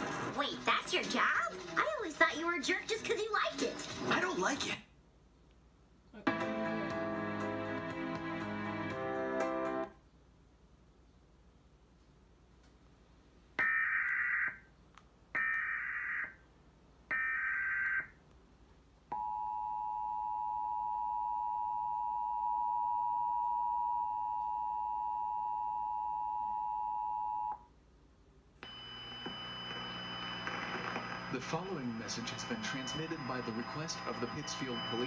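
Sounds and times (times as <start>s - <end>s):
noisy multi-tone sound: 13.6s - 18.4s, 28.6s - 35.0s
two-tone attention signal: 28.6s - 35.0s
screeching digital data bursts: 29.7s - 35.0s.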